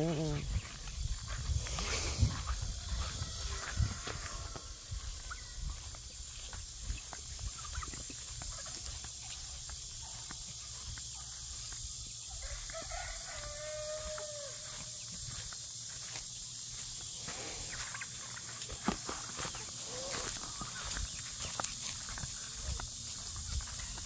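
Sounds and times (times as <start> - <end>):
footsteps through grass: 0.0 - 24.0
rooster crowing: 2.4 - 5.2, 12.4 - 14.8.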